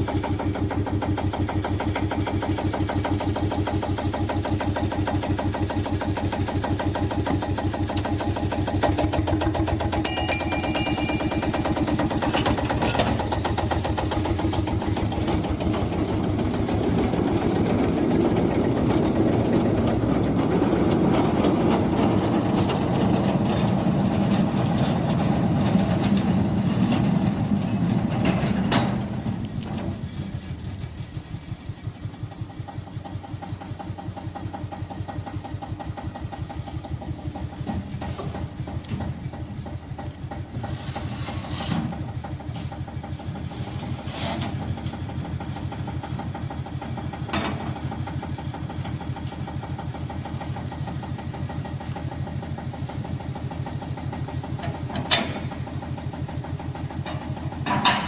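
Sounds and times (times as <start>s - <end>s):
diesel locomotive engine chugging: 0.0s - 58.0s
mechanical clunk: 57.0s - 58.0s.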